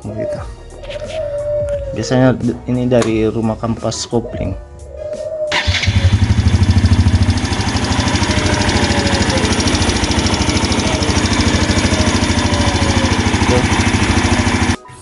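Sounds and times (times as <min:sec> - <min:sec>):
motorcycle engine idling: 0:05.5 - 0:14.8.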